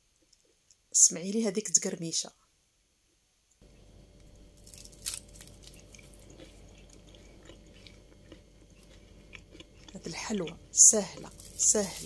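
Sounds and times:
fried pastry crunching: 4.3 - 12.0.

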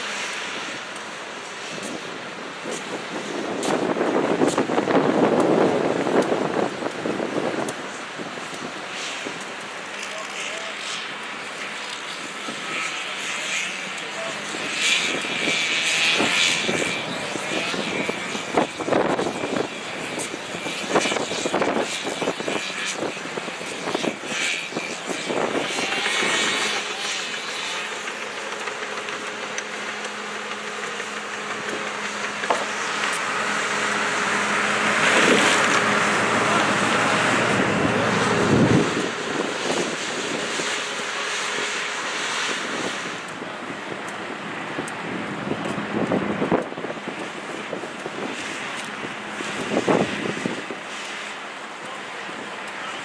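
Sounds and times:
excavator engine humming: 4.6 - 53.0
chainsaw cutting wood: 8.5 - 43.4.

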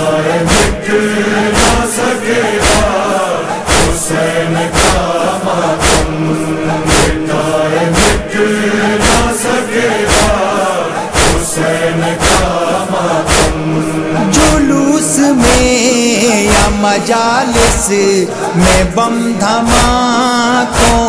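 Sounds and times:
male chorus chanting: 0.0 - 21.0
chest-beating thumps: 0.4 - 0.8, 1.5 - 1.9, 2.5 - 3.0, 3.7 - 5.1, 5.8 - 8.3, 9.0 - 9.4, 10.0 - 10.4, 11.1 - 12.6, 13.2 - 14.7, 15.4 - 15.8, 17.6 - 17.9.

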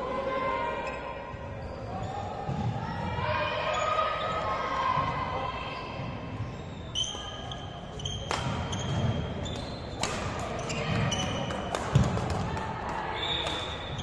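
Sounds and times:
sneakers squeaking on court: 6.4 - 12.2, 13.2 - 14.0
sharp slaps: 8.2 - 8.7, 10.0 - 10.6.

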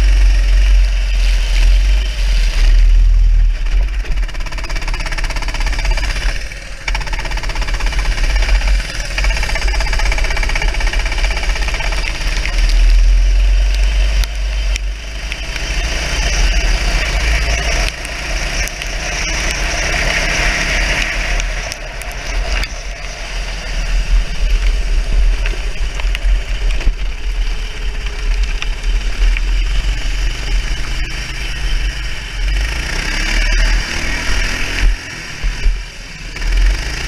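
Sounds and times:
kart engine running: 0.0 - 37.0
wind rumble on microphone: 11.8 - 32.8.

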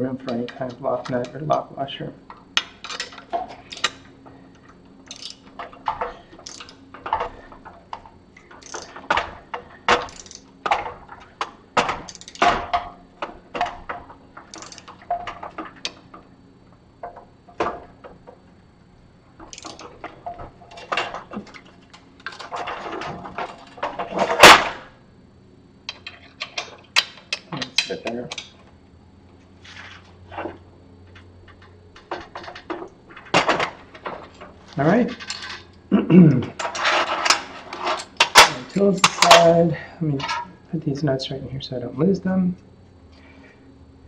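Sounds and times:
loud metal clank: 22.6 - 24.9.

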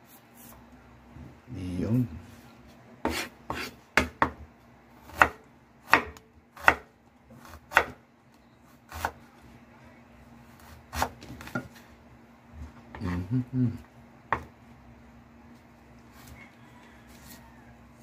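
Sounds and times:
knife chopping on wooden board: 3.0 - 4.4, 5.0 - 8.0, 10.6 - 11.8.

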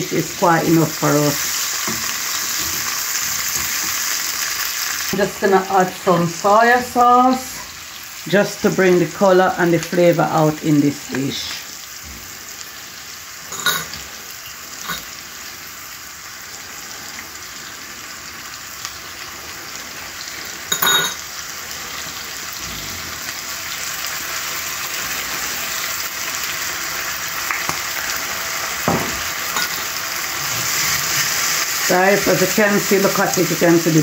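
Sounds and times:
vegetables sizzling in hot oil: 0.0 - 34.0.

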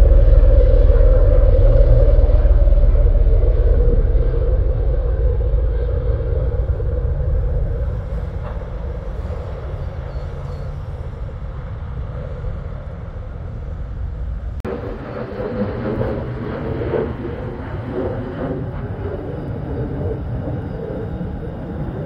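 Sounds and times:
fighter jet flying overhead: 0.0 - 22.0
tiltrotor aircraft droning: 0.0 - 22.0.

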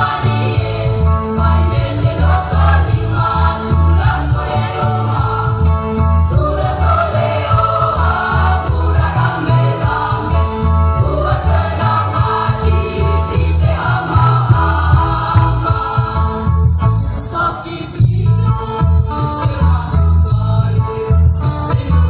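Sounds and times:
choir singing: 0.0 - 18.8
jingling percussion: 0.0 - 22.0.

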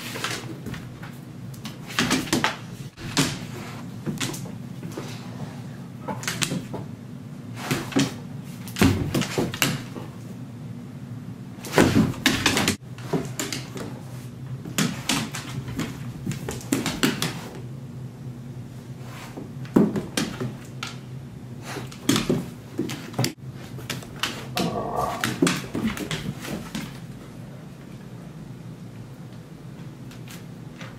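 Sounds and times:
low hum: 24.4 - 25.8.

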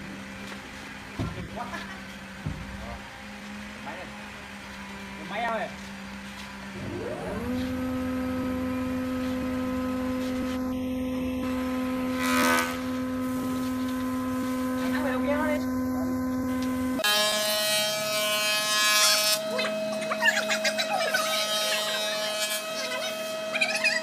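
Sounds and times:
jointer motor whine: 6.6 - 24.0.

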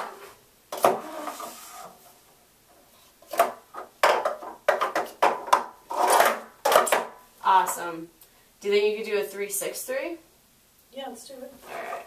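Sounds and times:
plastic cups clacking: 3.3 - 7.2.

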